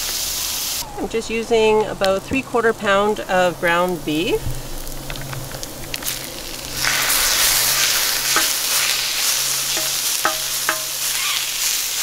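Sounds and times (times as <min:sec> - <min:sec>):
meat sizzling on hot steel: 0:00.0 - 0:00.8, 0:03.5 - 0:12.0
metal spatula scraping steel: 0:07.0 - 0:11.2.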